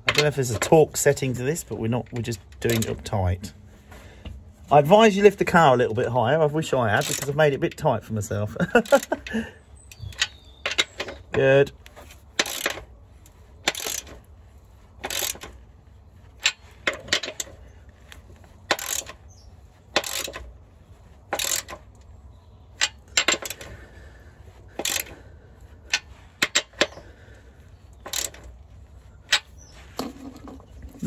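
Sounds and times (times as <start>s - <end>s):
hand ratchet clicking: 2.2s - 3.0s, 6.9s - 7.8s, 8.8s - 11.3s, 11.9s - 14.3s, 15.0s - 15.7s, 16.3s - 22.1s, 22.7s - 30.2s.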